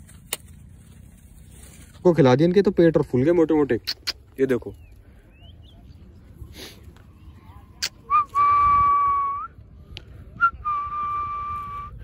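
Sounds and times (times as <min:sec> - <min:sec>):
person whistling long notes: 0:08.1 - 0:09.6, 0:10.4 - 0:12.0.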